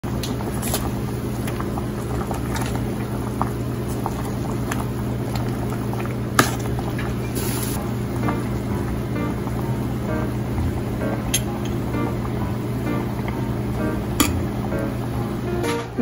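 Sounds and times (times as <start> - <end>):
steady low hum: 0.1 - 16.0
metal ladle clinking against pot: 14.2 - 14.5.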